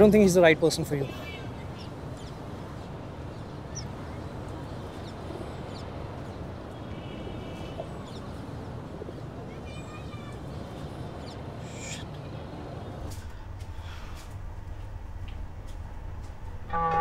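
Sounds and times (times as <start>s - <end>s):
distant traffic hum: 0.0s - 17.0s
bird calls: 1.0s - 13.3s.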